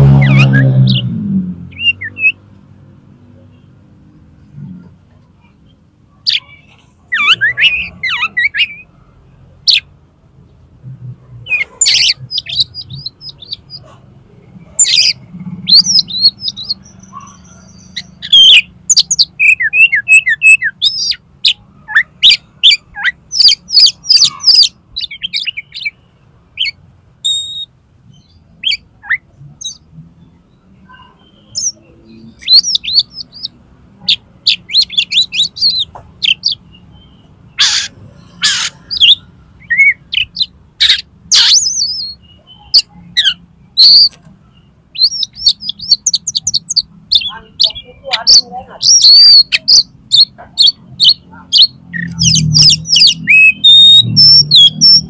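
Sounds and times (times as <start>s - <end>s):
bird singing whistled phrases: 0.2s - 1.0s, 6.3s - 8.8s, 14.8s - 21.2s, 26.6s - 29.8s, 30.9s - 33.6s, 38.4s - 44.1s, 45.0s - 55.0s.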